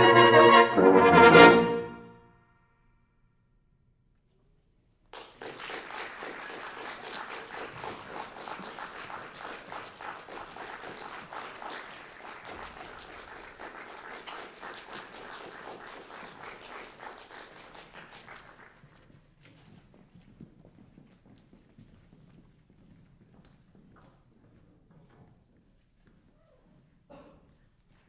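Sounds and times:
music: 0.0 - 2.6
audience applause: 5.2 - 18.9.

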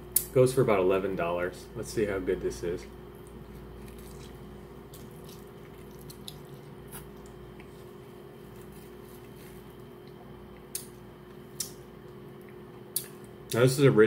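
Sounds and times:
steady low hum: 0.0 - 14.0
person chewing food: 3.0 - 13.4
wet mouth sounds: 3.2 - 7.8.

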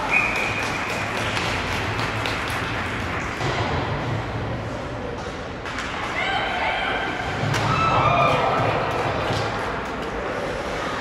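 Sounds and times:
sticks and skates on ice: 4.2 - 11.0.

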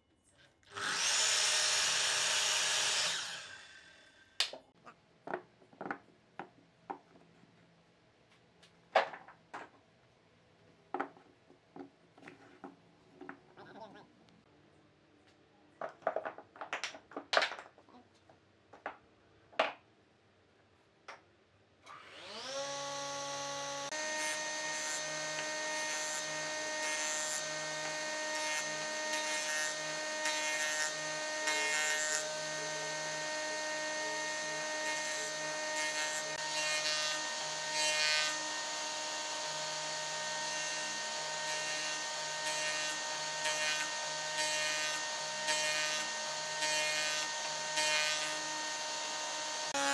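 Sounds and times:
electric motor whine: 0.7 - 4.1, 21.9 - 26.8, 27.4 - 49.9
jointer planing wood: 21.9 - 49.9.

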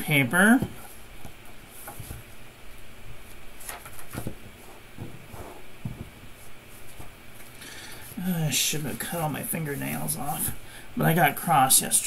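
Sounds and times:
paper pages rustling: 0.9 - 7.6.

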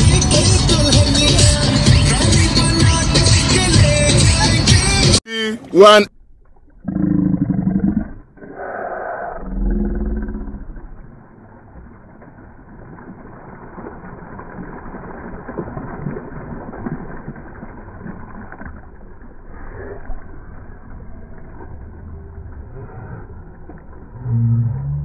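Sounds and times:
sea water splashing: 10.3 - 24.3.

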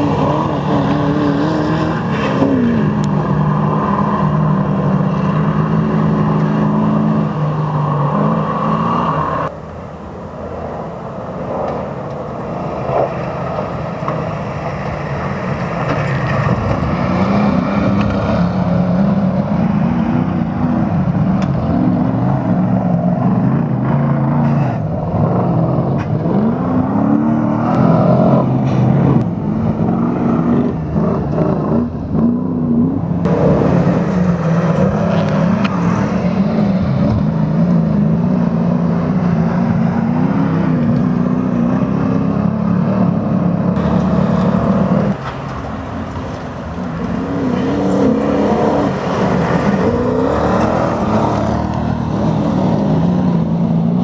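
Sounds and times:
truck engines revving hard: 0.0 - 54.0.

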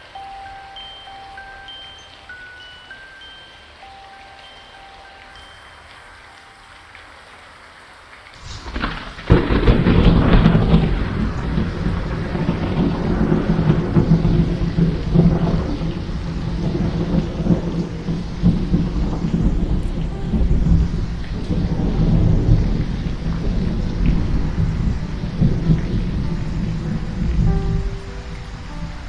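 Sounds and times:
heavy rain: 0.0 - 29.0
rolling thunder: 8.4 - 29.0.

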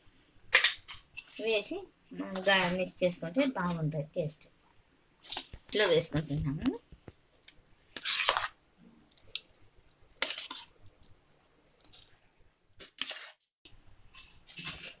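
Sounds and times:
spoon scraping rice in bowl: 7.9 - 8.6, 10.2 - 10.8, 12.8 - 13.4.

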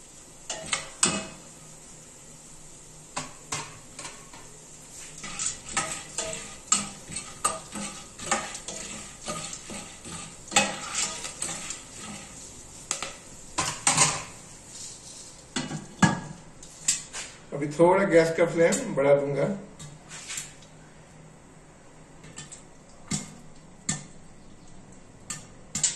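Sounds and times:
spoon scraping and clinking pot: 0.5 - 1.4, 5.1 - 15.9.

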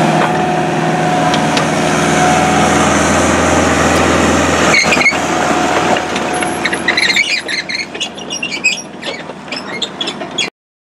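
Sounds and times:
diesel engine running: 0.0 - 10.5
high squeaks and chirps: 4.6 - 5.2, 6.3 - 10.5
short squeal: 4.6 - 5.2, 6.3 - 10.5.

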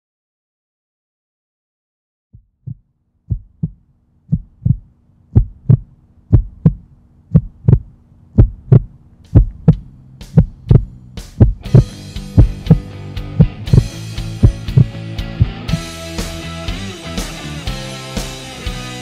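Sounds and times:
heartbeat thumps: 2.4 - 15.8
low steady hum: 2.4 - 15.8.

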